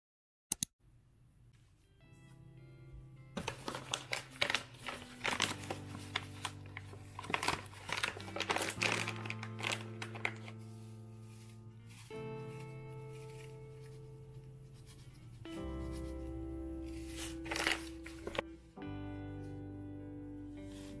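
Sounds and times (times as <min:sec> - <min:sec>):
soft background music: 0:01.5 - 0:21.0
paper bag crinkling: 0:03.4 - 0:14.1, 0:16.9 - 0:18.4.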